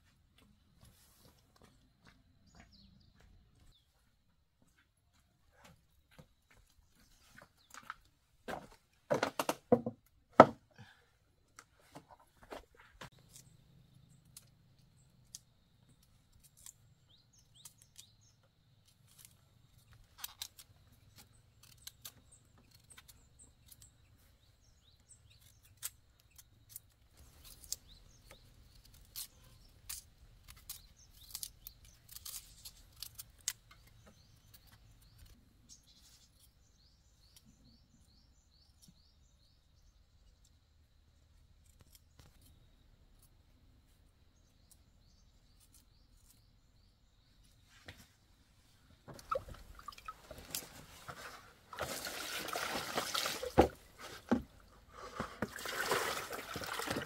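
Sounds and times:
small birds chirping: 0.0s - 8.9s, 10.7s - 57.0s
sharp clicks and snips: 41.6s - 42.6s.

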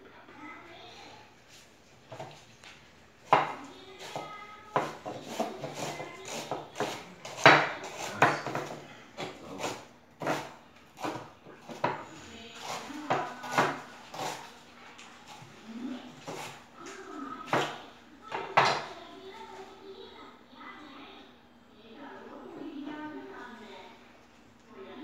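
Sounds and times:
knife chopping on wooden board: 3.3s - 14.5s, 16.2s - 16.6s, 17.5s - 18.8s.

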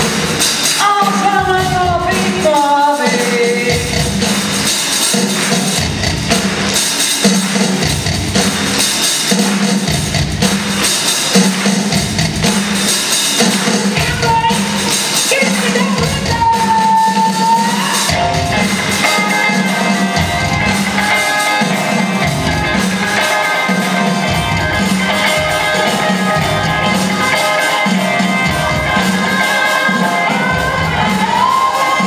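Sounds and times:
live funk band playing: 0.0s - 32.0s
pulsing bass line: 18.1s - 23.2s, 23.8s - 29.4s.

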